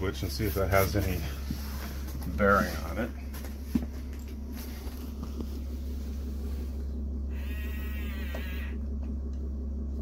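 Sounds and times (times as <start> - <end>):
engine idling hum: 0.0 - 10.0
rotary switch creaking squeak: 7.4 - 8.8.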